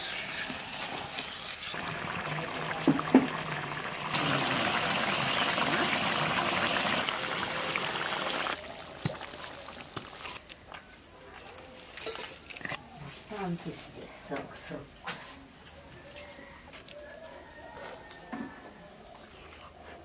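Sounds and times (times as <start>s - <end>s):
curry bubbling and sizzling: 0.0s - 10.5s.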